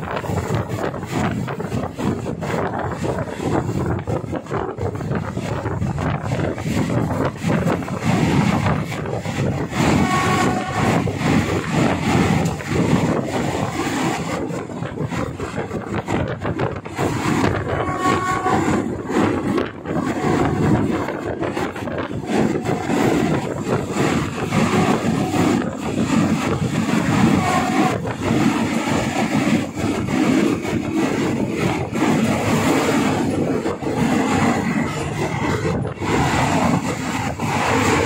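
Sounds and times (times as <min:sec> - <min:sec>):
train rumbling and rattling: 0:00.0 - 0:38.0.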